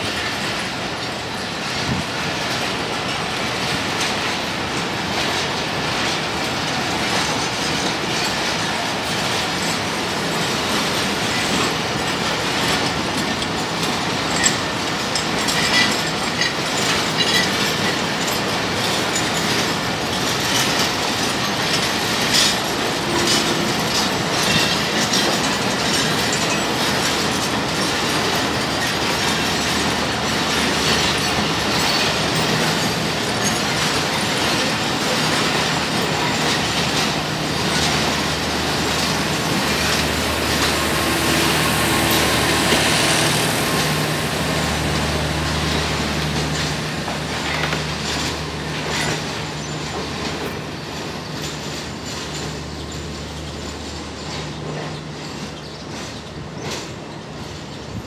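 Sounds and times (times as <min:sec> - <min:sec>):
train coaches rumbling past: 0:00.0 - 0:58.0
wheels clattering over rail joints: 0:00.0 - 0:58.0
wheel squeals: 0:14.2 - 0:58.0.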